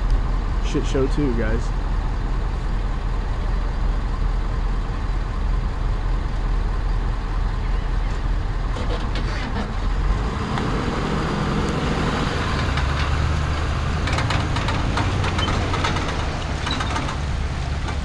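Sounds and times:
pickup truck engine rumbling: 0.0 - 18.0.

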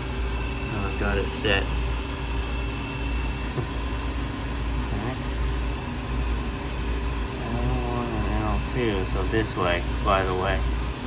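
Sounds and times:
freezer compressor humming: 0.0 - 11.0.

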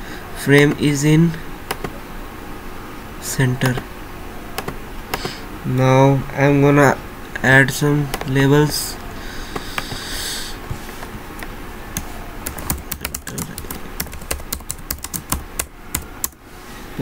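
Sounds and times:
keyboard typing clicks: 1.7 - 1.9, 4.6 - 5.4, 11.1 - 16.4.

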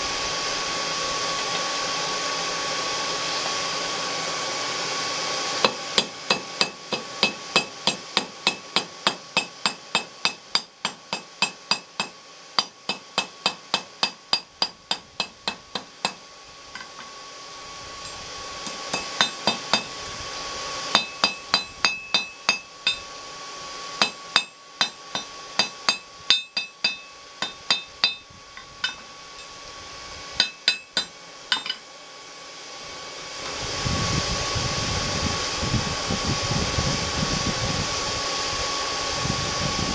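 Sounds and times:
forge blower humming: 0.0 - 39.9
hammer ringing on an anvil: 5.7 - 16.2, 18.1 - 19.9, 20.9 - 23.1, 24.0 - 28.2, 28.8 - 29.5, 30.4 - 31.8.

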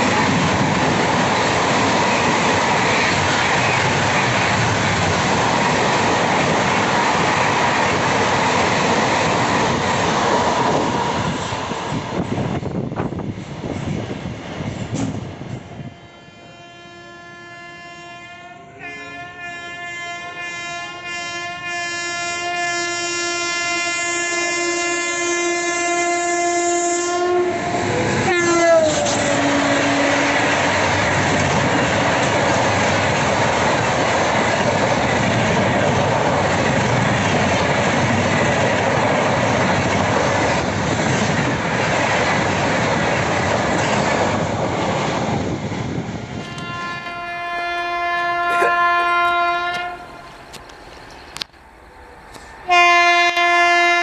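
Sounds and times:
locomotive horn blast: 15.8 - 31.0, 46.4 - 50.3, 52.7 - 54.0.

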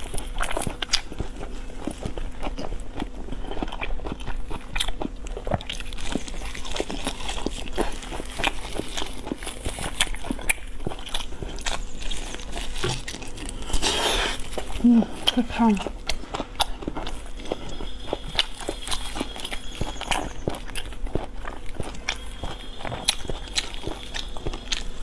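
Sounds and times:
person chewing meat: 0.0 - 25.0.

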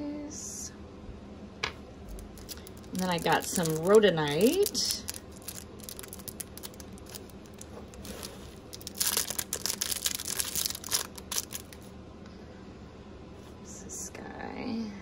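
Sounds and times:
plastic bag crinkling: 2.1 - 11.9.

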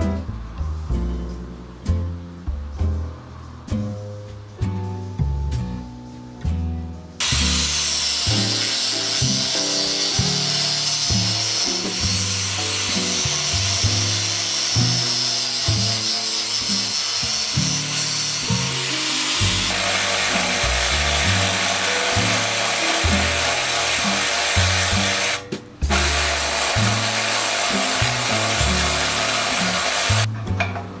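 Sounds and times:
background music: 0.0 - 31.0
power tool running: 7.2 - 30.3.

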